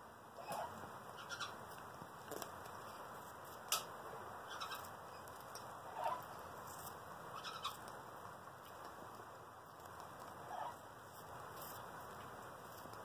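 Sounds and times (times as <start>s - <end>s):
bird beak clicks and crunches: 8.6s - 10.4s.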